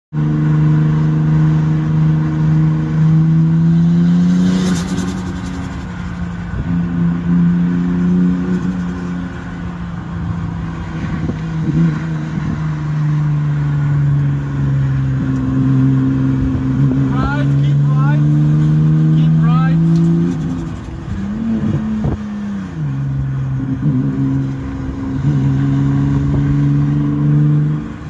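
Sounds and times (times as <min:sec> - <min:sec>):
car engine running hard: 0:00.1 - 0:28.0
wind and road rush: 0:00.1 - 0:28.0
engine crackle: 0:04.6 - 0:06.6, 0:19.8 - 0:22.3.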